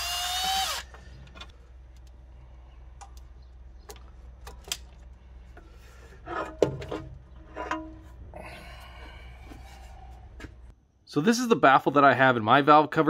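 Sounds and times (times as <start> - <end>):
metal scraping and knocking: 5.6 - 8.3.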